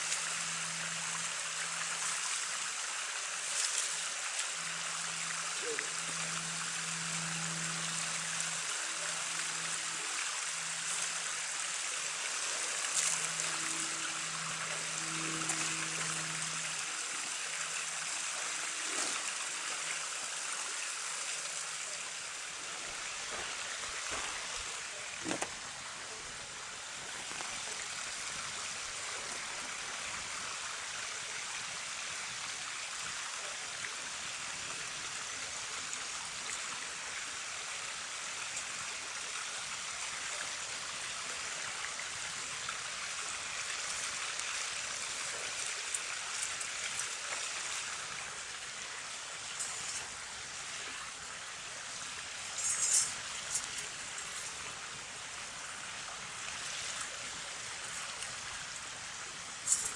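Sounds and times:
creek flowing: 0.0s - 59.9s.

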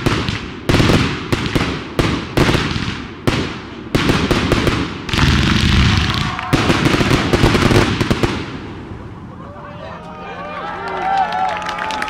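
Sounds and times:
fireworks bangs: 0.0s - 9.3s
fireworks crackling: 0.0s - 9.3s.

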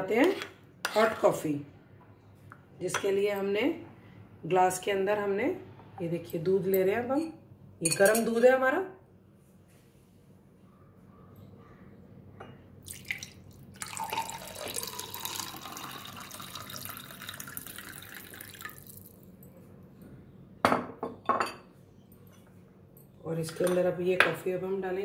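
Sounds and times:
milk pouring into glass: 12.8s - 19.2s
glass clinking: 13.8s - 18.7s.

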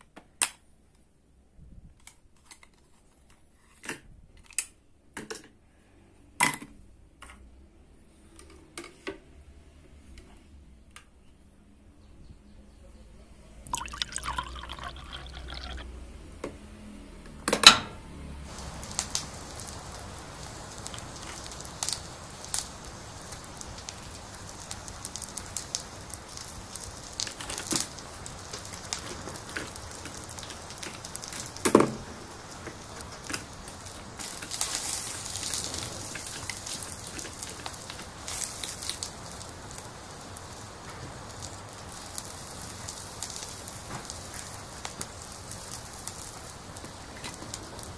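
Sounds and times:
pot simmering with pops: 13.7s - 15.8s, 18.5s - 47.9s
water pouring into pot: 13.7s - 15.8s, 18.5s - 47.9s.

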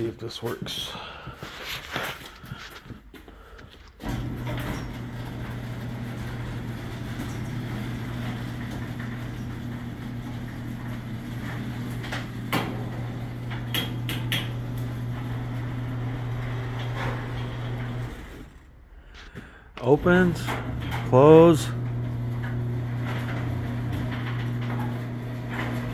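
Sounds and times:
garage door opener humming: 3.9s - 25.9s
sharp clicks and knocks: 13.5s - 14.6s.

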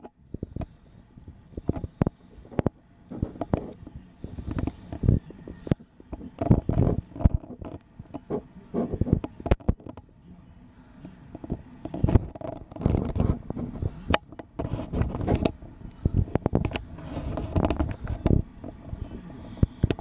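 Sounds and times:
camera jostling: 11.4s - 15.6s.

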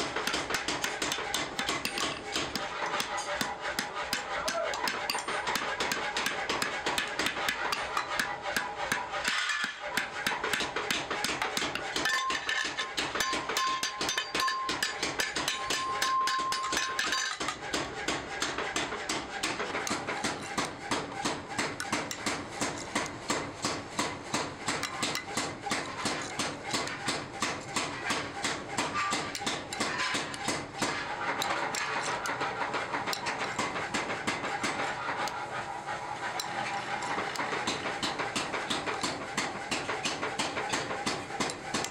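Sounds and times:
hammer tapping on metal: 0.0s - 35.4s, 36.4s - 41.9s.

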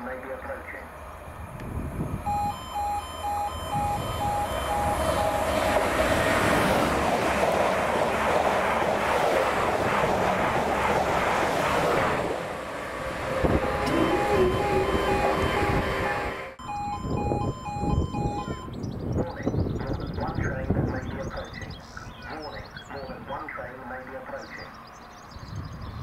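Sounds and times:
train passing at speed: 0.0s - 18.7s
level crossing alarm pulsing: 2.1s - 7.5s, 12.6s - 18.9s.

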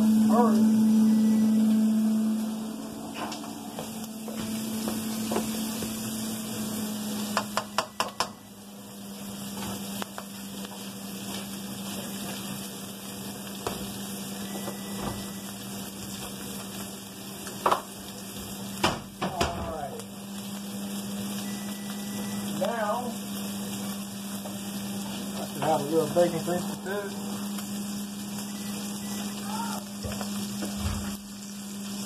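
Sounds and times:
steady low hum: 0.0s - 10.3s
bacon and onion sizzling: 0.0s - 32.0s.

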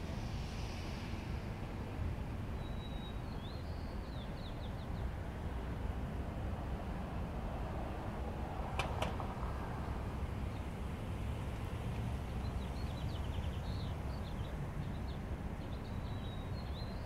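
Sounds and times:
air noise: 0.0s - 3.7s
traffic rumble: 0.0s - 17.0s.

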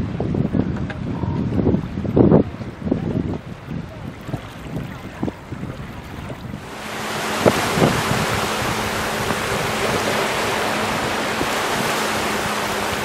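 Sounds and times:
rushing wind and water: 0.0s - 13.0s.

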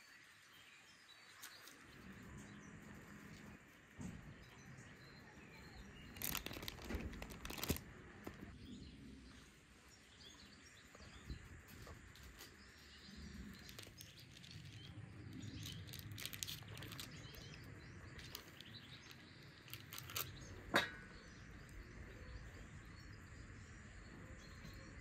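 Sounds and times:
birds chirping: 0.0s - 25.0s
dough handling sounds: 5.9s - 8.6s, 13.4s - 20.9s.

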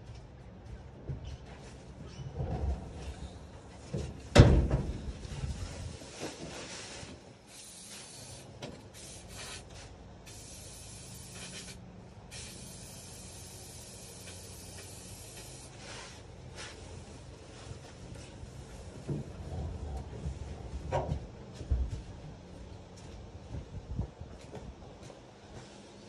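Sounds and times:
aerosol can spraying hiss: 7.5s - 9.7s, 10.3s - 15.7s.

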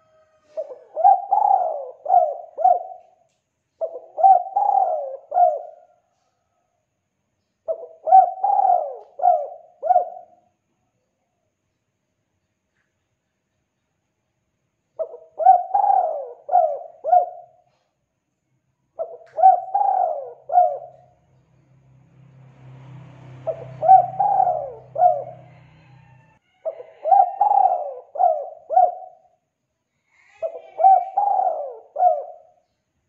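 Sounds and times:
dove cooing: 0.0s - 3.2s, 3.8s - 6.0s, 7.7s - 10.4s, 15.0s - 17.8s, 19.0s - 21.2s, 23.4s - 29.4s, 30.2s - 32.6s.

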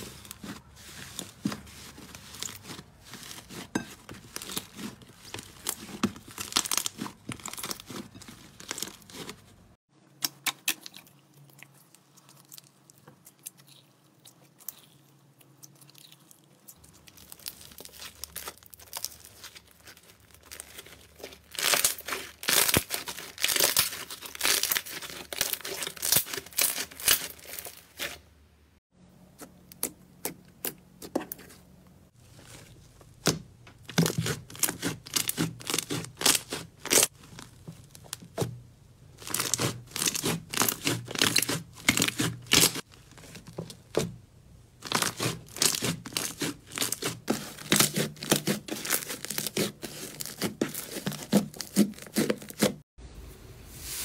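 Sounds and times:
slime crackling and popping: 4.2s - 9.3s, 15.9s - 28.1s, 33.2s - 38.5s, 39.2s - 44.0s, 44.8s - 52.7s.

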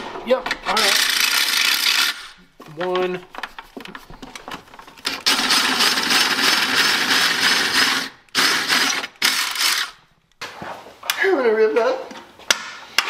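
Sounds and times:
cordless drill boring sheet metal: 0.8s - 2.4s, 5.1s - 10.0s.

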